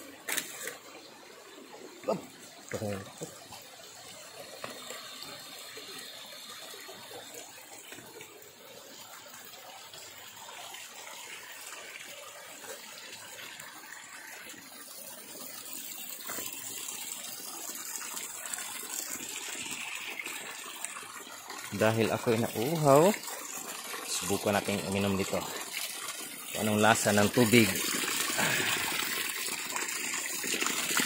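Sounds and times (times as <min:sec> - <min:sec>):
mountain water splashing: 0:19.5 - 0:31.0.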